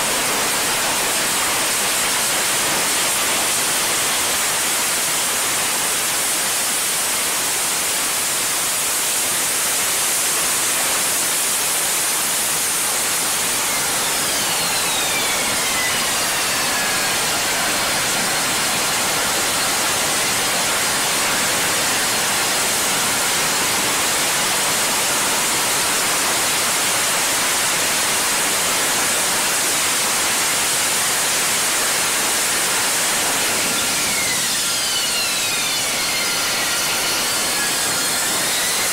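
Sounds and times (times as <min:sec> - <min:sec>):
high turbine whine: 0:00.0 - 0:38.9
jet engine roaring: 0:11.8 - 0:25.6, 0:31.8 - 0:38.9.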